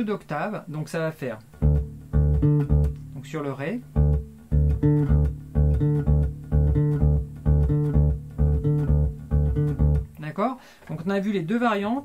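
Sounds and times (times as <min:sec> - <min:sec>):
electric bass guitar octaves: 0:00.8 - 0:10.4.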